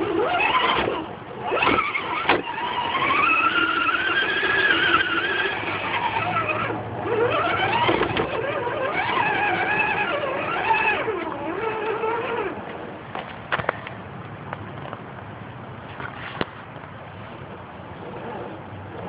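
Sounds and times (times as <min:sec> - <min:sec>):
electric motor whining: 0:00.0 - 0:12.8.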